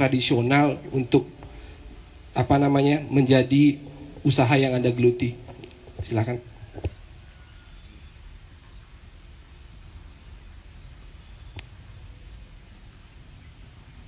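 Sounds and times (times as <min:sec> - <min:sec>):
faint high chirps: 0:06.5 - 0:14.0
sharp click: 0:11.5 - 0:11.8.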